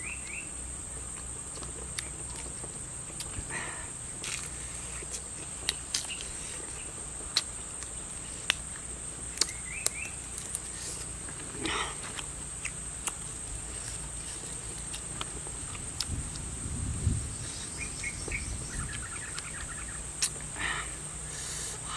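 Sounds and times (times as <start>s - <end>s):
faint bird chirps: 0.0s - 0.6s, 9.4s - 10.2s, 17.1s - 20.2s
insects droning: 0.0s - 21.9s
person eating with clicks and smacks: 1.1s - 3.5s, 4.1s - 16.5s, 18.9s - 20.6s.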